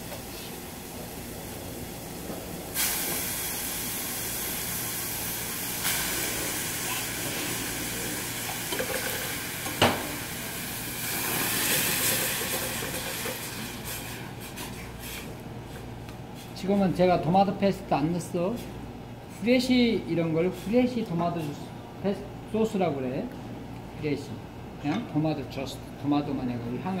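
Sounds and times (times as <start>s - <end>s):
tomatoes sizzling in pan: 1.9s - 14.5s.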